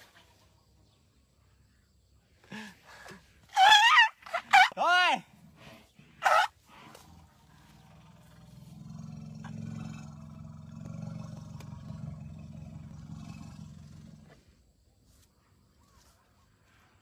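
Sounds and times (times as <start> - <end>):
elephant low rumble: 5.4 - 14.7.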